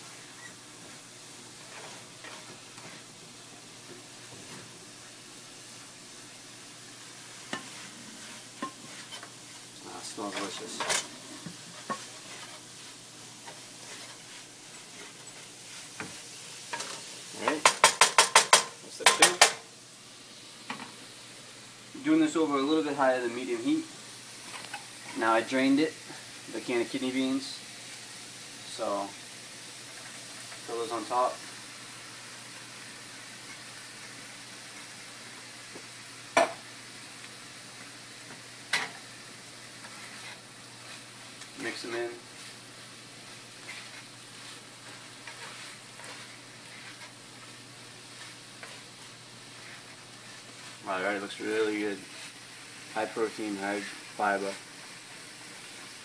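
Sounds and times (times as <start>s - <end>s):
meat sizzling in a skillet: 0.0s - 56.0s
spatula stirring: 7.4s - 19.4s, 39.7s - 42.6s, 43.2s - 51.0s
spatula knocking on pan: 17.6s - 19.6s.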